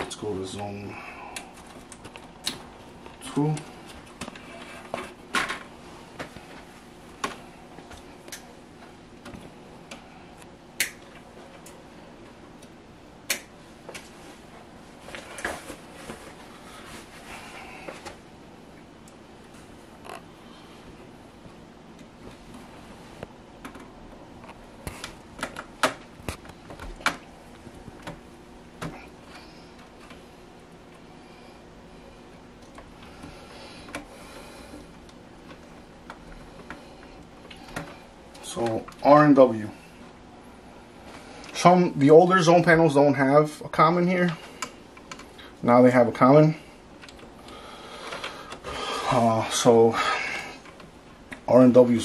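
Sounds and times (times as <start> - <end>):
small clicks of wires fitted: 47.0 - 48.6.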